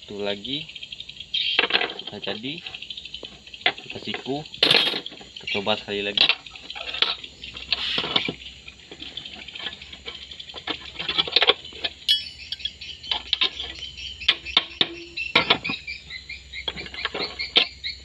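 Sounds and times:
metallic clinks of rebar on pins: 0:12.1 - 0:15.7.

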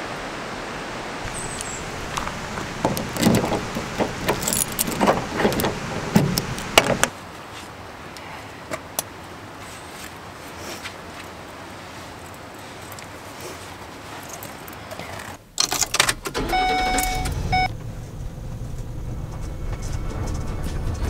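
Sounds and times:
steady hiss: 0:00.0 - 0:15.1
keys jangling: 0:03.0 - 0:05.7.

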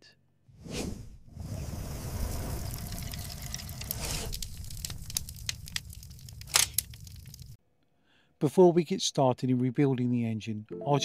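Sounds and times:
rush of flames: 0:00.5 - 0:07.6
fire crackling: 0:00.6 - 0:07.6.

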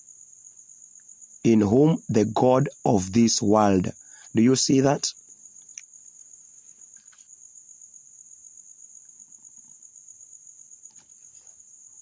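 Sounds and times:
crickets trilling: 0:00.0 - 0:12.0
faint rustle: 0:05.2 - 0:07.5, 0:10.8 - 0:12.0.

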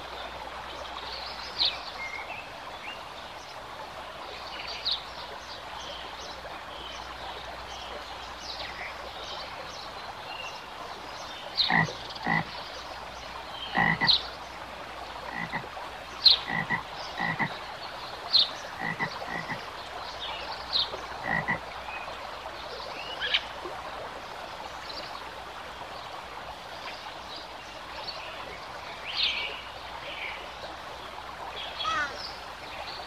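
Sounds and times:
steady background hiss: 0:00.0 - 0:33.0
frogs croaking: 0:11.5 - 0:21.8.

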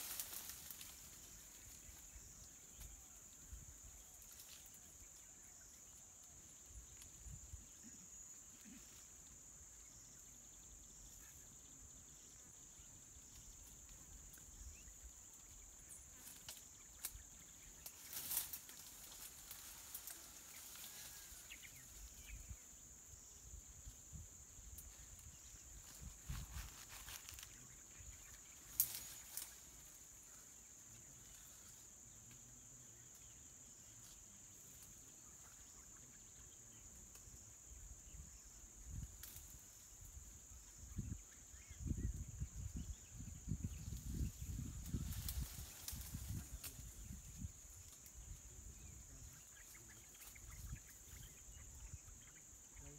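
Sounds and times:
snaps and rustles: 0:00.0 - 0:01.2, 0:17.8 - 0:20.2, 0:28.6 - 0:29.6
high insect drone: 0:00.0 - 0:52.9.

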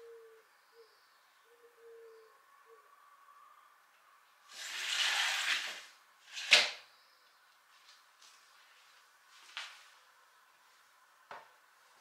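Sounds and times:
faint low hoots: 0:00.0 - 0:03.7
window sliding open: 0:04.5 - 0:06.8.

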